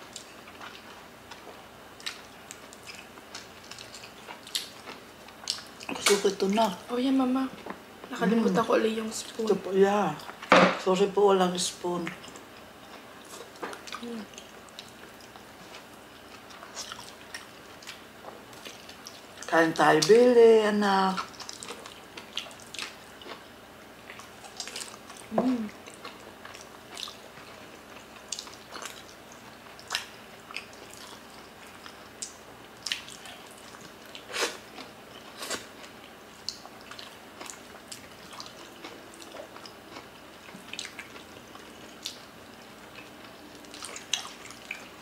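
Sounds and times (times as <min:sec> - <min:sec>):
wet chewing and mouth smacks: 0:00.1 - 0:06.2, 0:24.0 - 0:45.0
person humming: 0:25.3 - 0:25.8.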